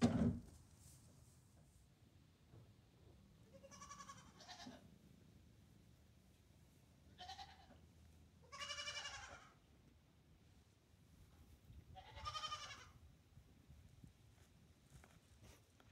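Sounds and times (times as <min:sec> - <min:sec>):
goat kid bleating: 0:03.4 - 0:04.8, 0:07.1 - 0:09.6, 0:11.9 - 0:13.0.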